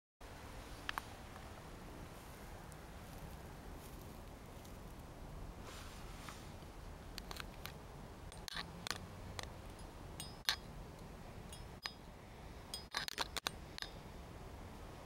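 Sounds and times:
low steady hum: 0.2s - 15.0s
sharp clicks and crackles: 7.1s - 12.0s, 12.8s - 14.0s.

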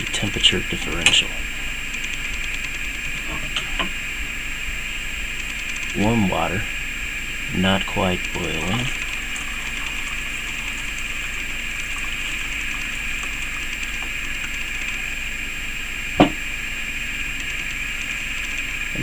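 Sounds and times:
steady background hiss: 0.0s - 19.0s
sharp knock: 16.2s - 16.4s.

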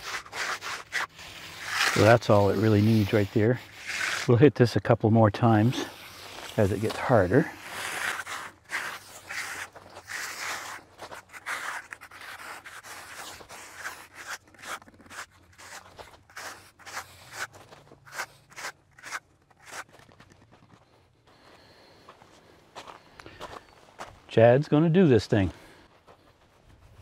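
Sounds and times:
concrete edger scraping: 0.0s - 20.4s
footsteps on gravelly dirt: 15.5s - 24.6s, 25.4s - 27.0s.

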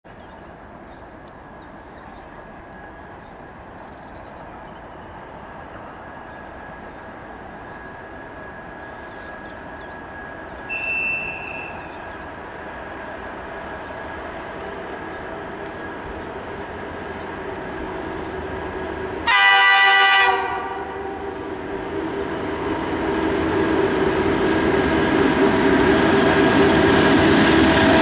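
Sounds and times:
diesel locomotive rumble: 5.3s - 28.0s
locomotive whistle blast: 10.7s - 11.8s, 19.2s - 21.2s.

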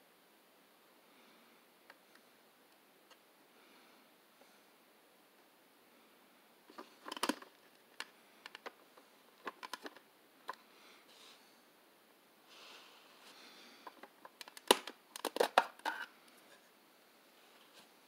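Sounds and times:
soft rustle: 16.2s - 18.0s.

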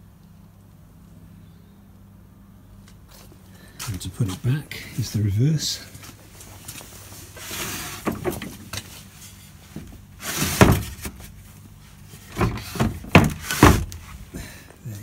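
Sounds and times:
wood sliding on wood: 7.4s - 8.6s
wooden slats knocking: 12.4s - 13.9s.

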